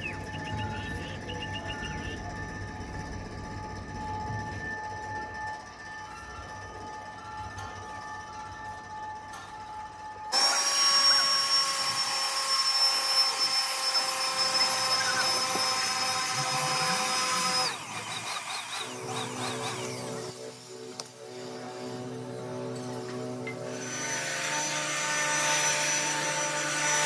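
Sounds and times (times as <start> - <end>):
electric air blower whining: 10.3 - 27.0.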